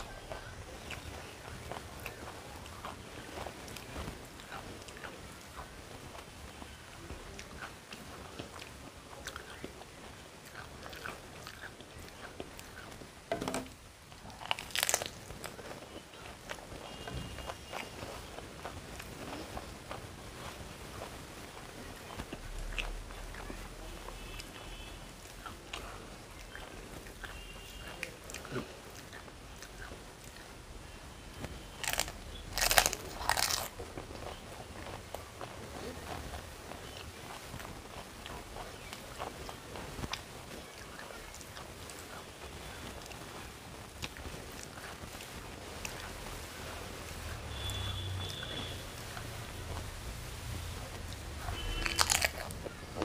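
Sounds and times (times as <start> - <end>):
crisp shell crackling: 0.0 - 30.6, 31.4 - 50.0, 50.8 - 53.0
crunching while eating: 0.0 - 50.0, 50.8 - 53.0
crunching crisp shell: 10.4 - 18.4, 31.4 - 35.0, 51.1 - 53.0.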